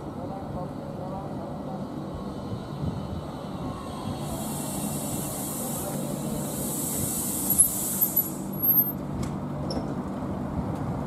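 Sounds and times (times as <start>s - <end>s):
tram braking to a stop: 1.8s - 10.0s
high hiss: 4.0s - 8.9s.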